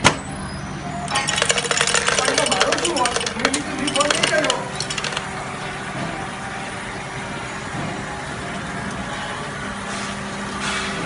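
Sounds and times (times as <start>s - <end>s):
machine humming: 1.0s - 9.6s.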